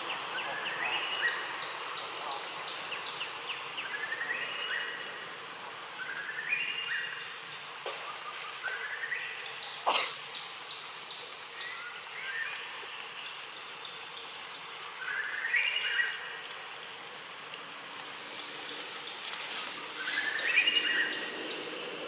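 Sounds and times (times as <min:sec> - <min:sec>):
high insect drone: 0:00.0 - 0:22.0
bird singing rising notes: 0:19.0 - 0:22.0.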